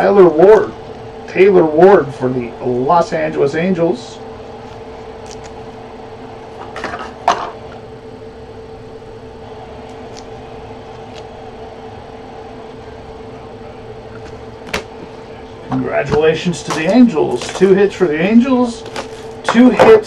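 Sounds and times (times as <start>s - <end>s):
room hum: 0.0s - 20.0s
card scraping and clicking: 4.7s - 5.6s, 10.9s - 11.3s, 16.7s - 17.8s, 18.8s - 19.6s.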